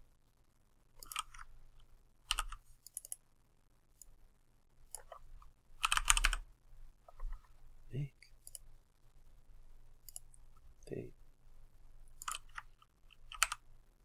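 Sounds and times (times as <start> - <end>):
computer keyboard typing: 1.0 - 1.5, 2.2 - 3.2, 4.9 - 5.2, 5.8 - 6.4, 12.2 - 13.6.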